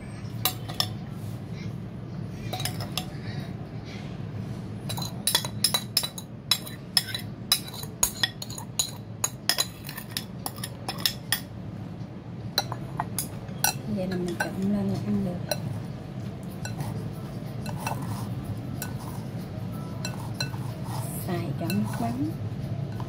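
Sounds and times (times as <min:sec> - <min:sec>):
spoon clinking ceramic bowl: 0:04.9 - 0:11.5, 0:12.6 - 0:14.7, 0:17.6 - 0:19.3, 0:20.0 - 0:22.2.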